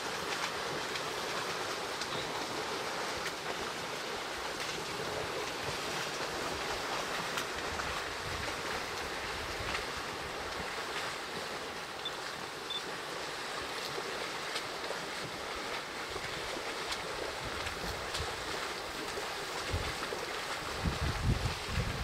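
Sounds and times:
faint splashes: 0:00.0 - 0:22.0
water washing as elephants wade: 0:00.0 - 0:22.0
wind rumble on microphone: 0:07.4 - 0:10.7, 0:16.1 - 0:22.0.

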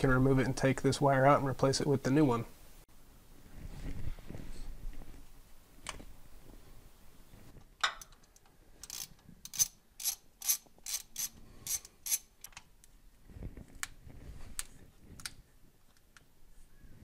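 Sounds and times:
ratchet wrench clicking: 0:08.8 - 0:12.3.

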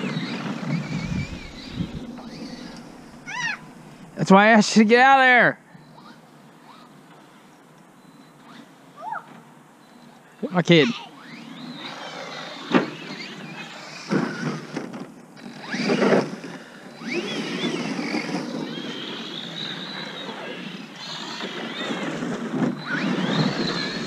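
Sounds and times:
electric toy motor whining: 0:00.0 - 0:03.8, 0:10.6 - 0:24.0.

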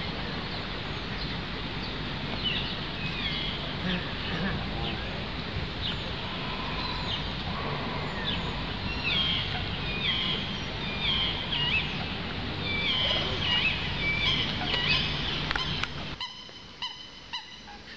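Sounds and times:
birds chirping: 0:00.0 - 0:17.9
low background rumble: 0:00.0 - 0:17.9
sharp repeated bird calls: 0:05.8 - 0:17.9.

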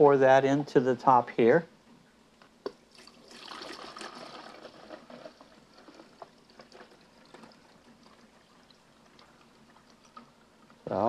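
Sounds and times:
water pouring and splashing: 0:02.9 - 0:10.4
water dripping: 0:05.7 - 0:10.8.

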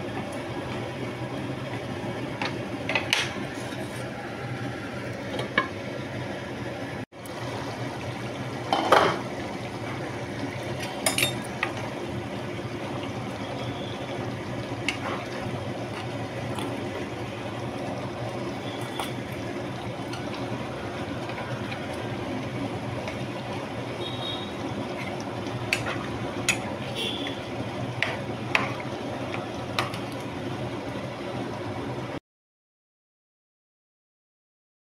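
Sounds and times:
curry bubbling in pan: 0:07.3 - 0:31.8.

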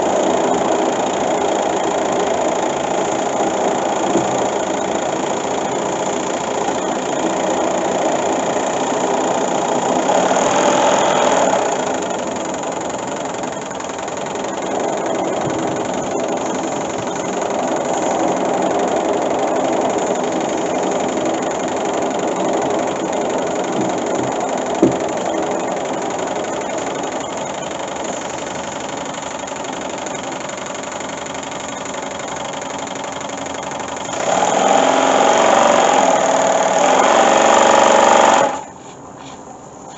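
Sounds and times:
model steam engine clattering: 0:00.0 - 0:38.8.

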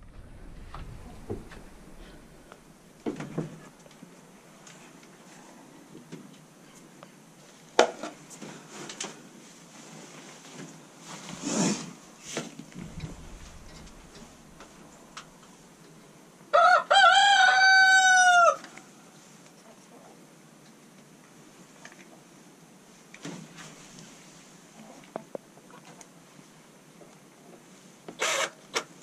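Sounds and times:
rustling: 0:00.0 - 0:03.9, 0:08.5 - 0:15.9
rooster crowing: 0:16.5 - 0:18.6.

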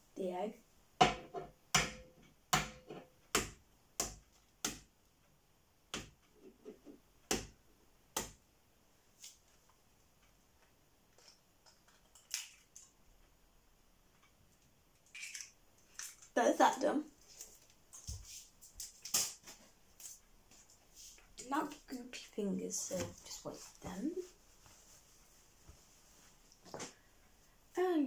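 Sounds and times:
eggshell crackling: 0:11.2 - 0:13.1, 0:14.9 - 0:16.4.

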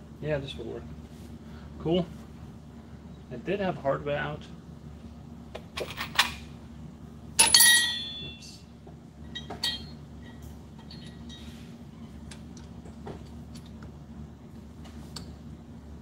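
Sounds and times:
metal hardware clattering: 0:07.4 - 0:08.4, 0:09.2 - 0:11.5
small metal parts clinking: 0:09.3 - 0:11.5.

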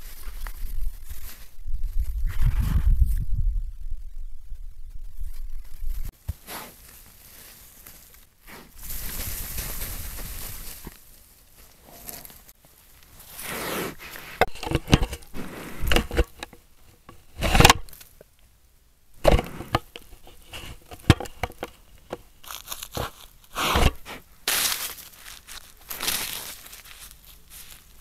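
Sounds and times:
fur scraping on camera: 0:19.3 - 0:21.7, 0:22.4 - 0:28.0.

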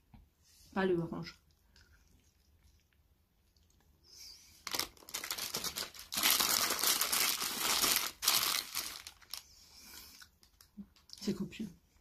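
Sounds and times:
food wrapping crinkling: 0:04.6 - 0:11.2.

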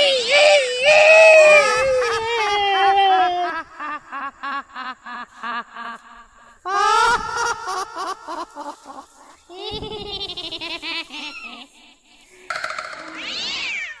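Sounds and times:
person shrieking: 0:12.8 - 0:14.0.

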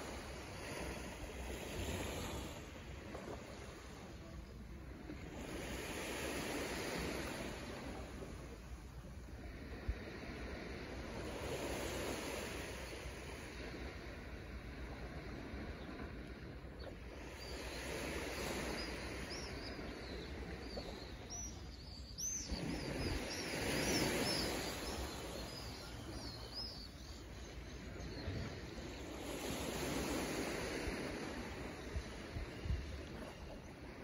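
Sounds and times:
bird chirping: 0:18.7 - 0:28.6.

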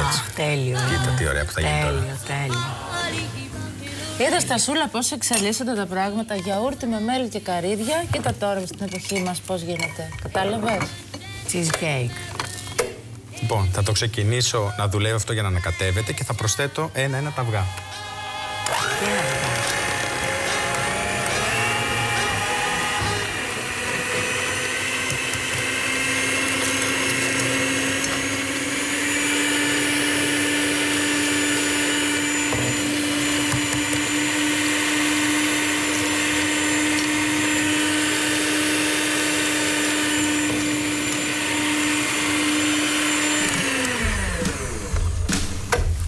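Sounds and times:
electric stand mixer running: 0:17.3 - 0:45.8.

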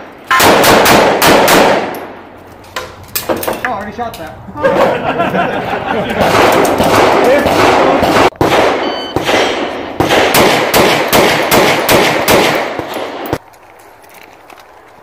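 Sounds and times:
pistol shots echoing: 0:00.0 - 0:02.2, 0:06.1 - 0:13.4
shot timer beep: 0:08.8 - 0:09.2.

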